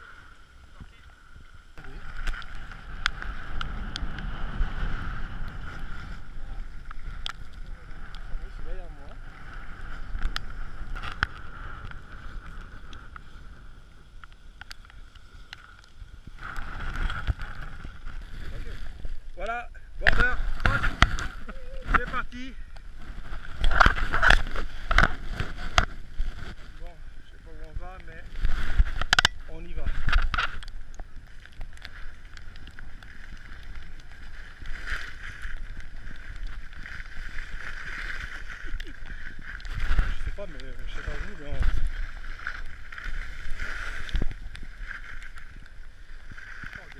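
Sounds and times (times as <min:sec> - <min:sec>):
skis scraping over snow: 0:01.8 - 0:14.0, 0:15.1 - 0:30.6, 0:31.3 - 0:46.9
wind buffeting microphone: 0:01.8 - 0:14.1.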